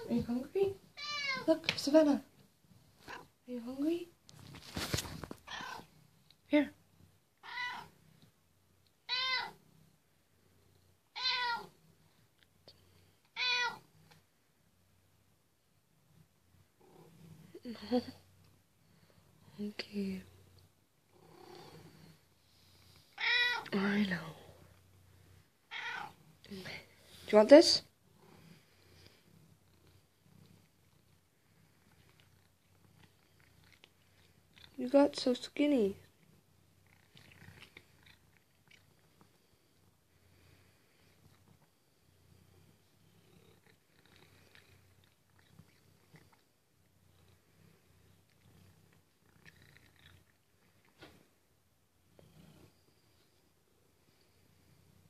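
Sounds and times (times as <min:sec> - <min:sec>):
cat purring: 0:00.0 - 0:13.2, 0:13.8 - 0:55.0
cat meowing: 0:01.0 - 0:01.5, 0:07.4 - 0:07.9, 0:09.1 - 0:09.6, 0:11.1 - 0:11.7, 0:13.4 - 0:13.8, 0:23.2 - 0:23.8, 0:25.7 - 0:26.2.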